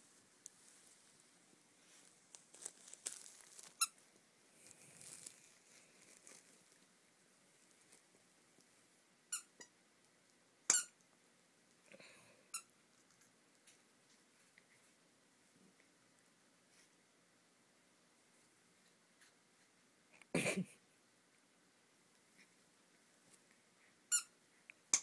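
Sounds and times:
toy and bedding rustling: 0.0s - 8.8s
squeaky toy squeaking: 10.7s - 11.0s, 24.1s - 24.3s.

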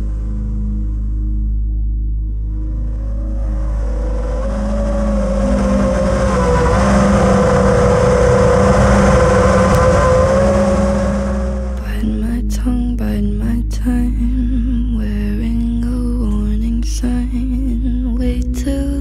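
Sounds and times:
drone motors and propellers whining: 2.3s - 12.1s.

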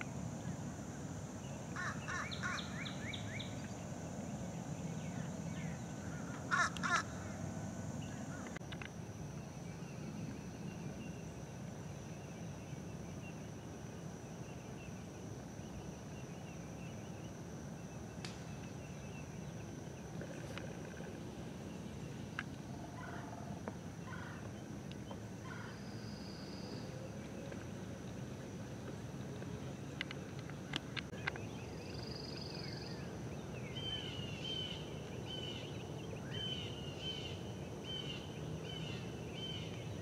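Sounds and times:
high-pitched whine and chirping: 0.0s - 40.0s
bird calls: 1.7s - 3.9s, 4.9s - 7.4s.

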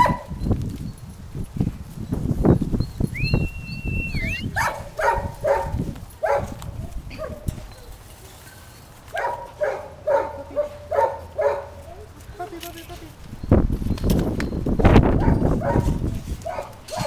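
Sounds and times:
high whistling note: 3.1s - 4.6s
puppies yapping: 3.1s - 11.8s, 15.2s - 17.0s.

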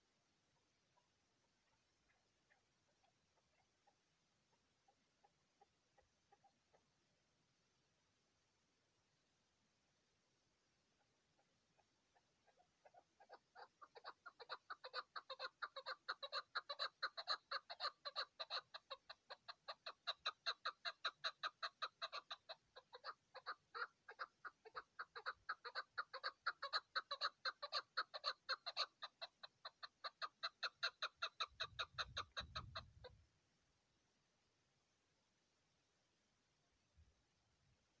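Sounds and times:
partridge clucking calls: 0.9s - 6.8s, 11.4s - 33.2s.

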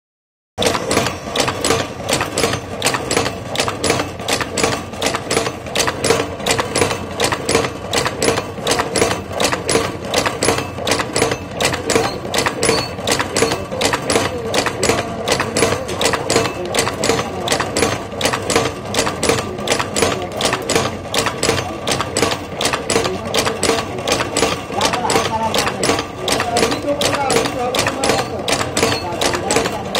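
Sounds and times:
wire-forming machine clacking: 0.6s - 29.9s.

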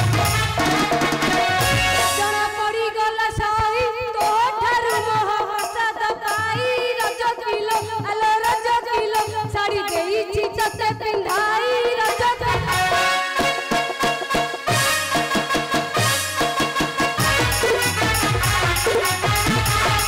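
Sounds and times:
quick drum beat: 0.0s - 2.5s, 17.0s - 20.0s.

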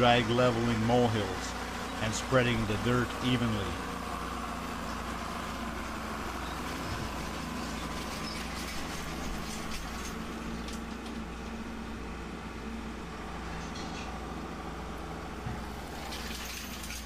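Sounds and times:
tractor engine running: 0.0s - 17.0s
chains and tines clinking: 16.0s - 17.0s.

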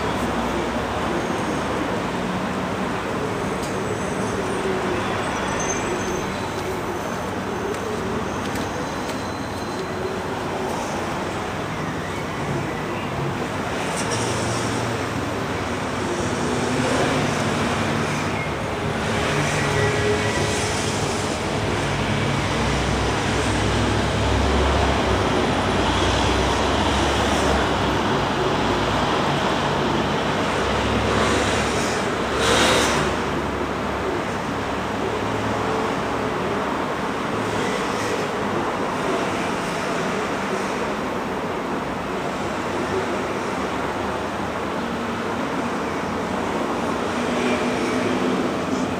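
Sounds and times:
rumble of passing cars: 0.0s - 48.9s.

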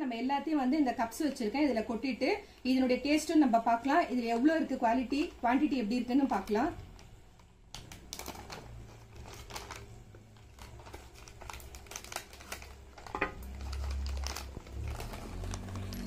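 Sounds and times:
plastic packet crinkling: 4.1s - 16.0s.

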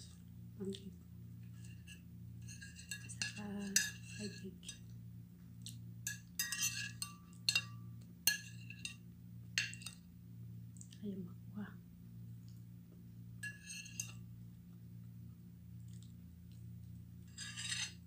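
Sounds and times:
metal spoon scraping ceramic plate: 1.5s - 4.8s, 6.1s - 9.0s, 13.4s - 14.2s, 17.3s - 18.0s.

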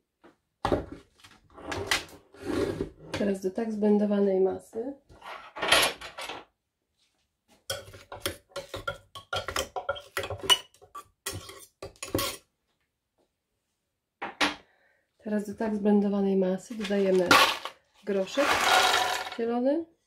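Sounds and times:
utensil scraping blender jar: 7.7s - 12.4s, 16.7s - 19.4s.

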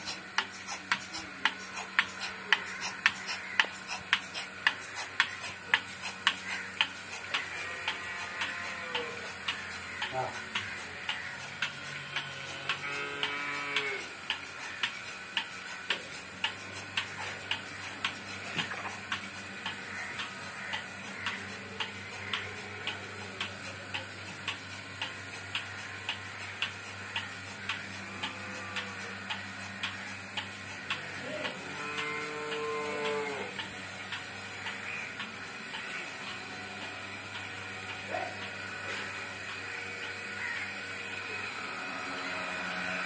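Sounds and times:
milking machine pulsators clicking: 0.0s - 43.0s
vacuum pump hum: 0.0s - 43.0s
cow mooing: 12.6s - 14.0s, 31.5s - 33.5s.

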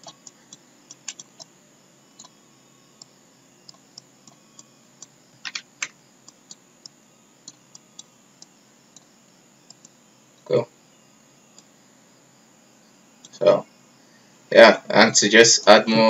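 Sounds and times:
computer mouse clicks: 0.0s - 1.5s, 2.2s - 2.4s, 3.0s - 9.1s, 9.7s - 10.0s, 11.5s - 11.7s.

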